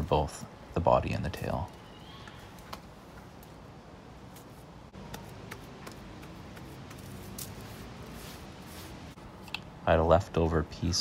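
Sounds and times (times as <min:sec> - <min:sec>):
gloved hands tapping wet cement: 0:05.0 - 0:07.1.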